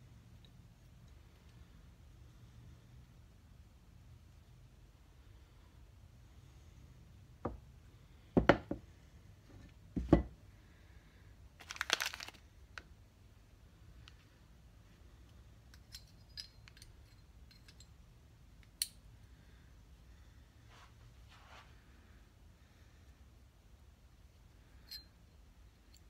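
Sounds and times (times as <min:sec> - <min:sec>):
plastic wrapping crinkle: 0:11.6 - 0:12.9
metal parts knocking and clinking: 0:15.7 - 0:18.0.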